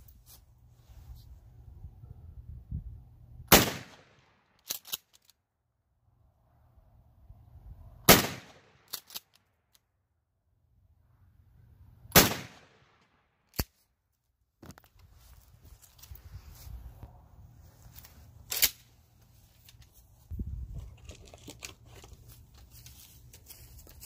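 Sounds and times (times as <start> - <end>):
shotgun shots: 3.5 - 4.3, 8.1 - 8.9, 12.1 - 13.0.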